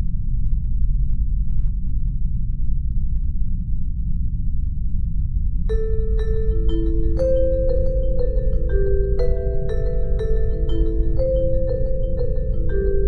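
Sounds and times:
mallet percussion melody: 5.7 - 13.0.

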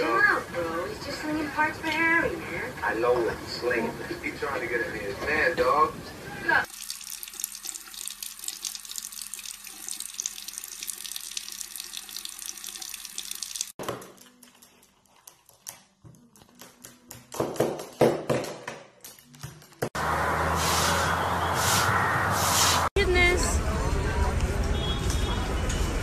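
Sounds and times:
tap water running into sink: 6.7 - 13.8.

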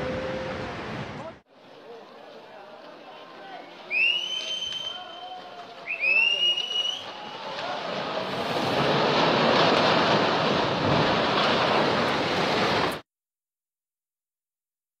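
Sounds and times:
rockfall crashing down cliff: 7.0 - 13.0.

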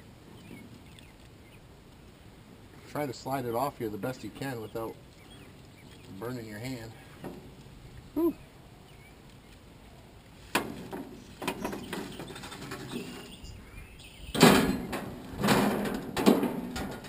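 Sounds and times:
foil pan scraping on metal grate: 10.6 - 13.4.

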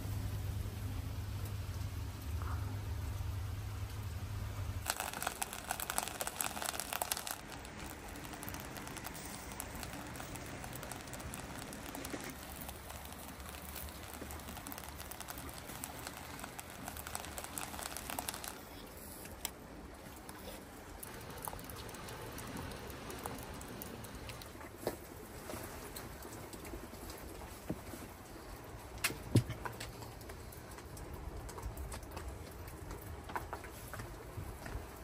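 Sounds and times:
heavy rain falling: 0.0 - 18.8, 20.7 - 27.4.

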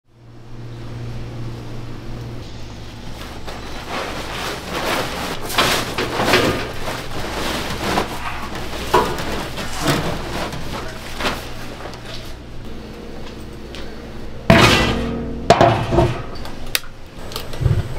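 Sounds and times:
plastic tarpaulin rustling: 2.4 - 12.6.

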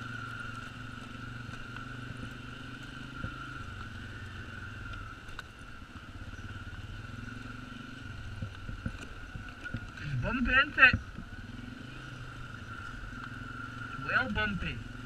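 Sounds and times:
atv engine running: 0.0 - 15.0
light knocks over bumps: 8.2 - 11.4.

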